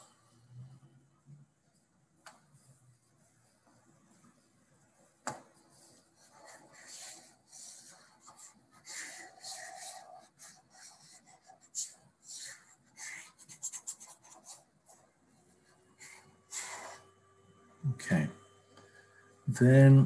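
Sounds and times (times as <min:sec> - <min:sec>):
stylus scratching on pen tablet: 0:05.6 - 0:17.1.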